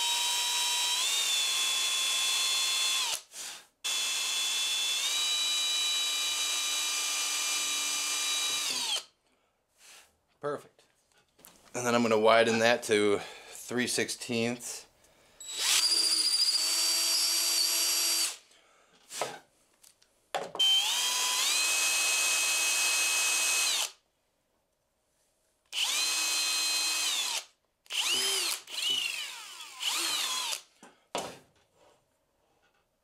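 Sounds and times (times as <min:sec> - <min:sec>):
cordless drill motor whine: 0:00.0 - 0:03.2, 0:03.9 - 0:09.0, 0:15.4 - 0:18.4, 0:20.6 - 0:23.9, 0:25.8 - 0:30.6.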